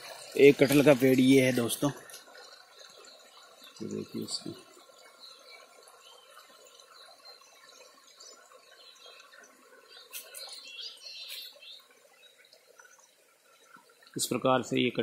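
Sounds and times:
faint outdoor ambience: 0:00.0 - 0:15.0
high bird chirps: 0:09.9 - 0:12.4.

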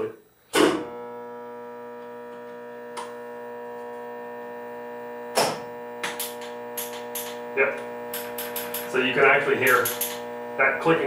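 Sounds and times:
steady machine hum: 0:00.0 - 0:11.0
solenoid valves clicking: 0:05.2 - 0:10.4.

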